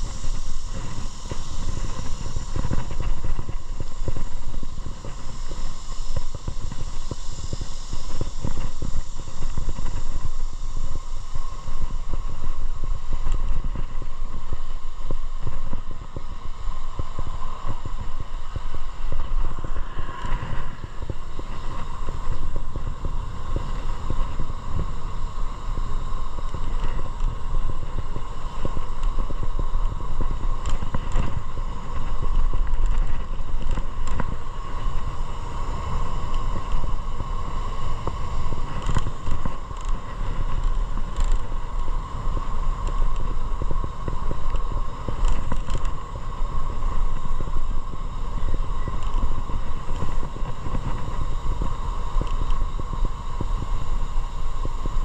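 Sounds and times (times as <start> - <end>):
faint steady whine: 0.0 - 55.0
wind on microphone: 0.0 - 55.0.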